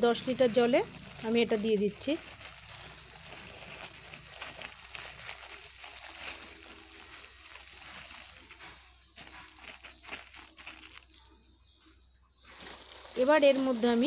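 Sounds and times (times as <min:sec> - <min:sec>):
plastic bag crinkling: 0:00.0 - 0:11.4, 0:12.4 - 0:14.0
crackly fizz: 0:00.3 - 0:11.1.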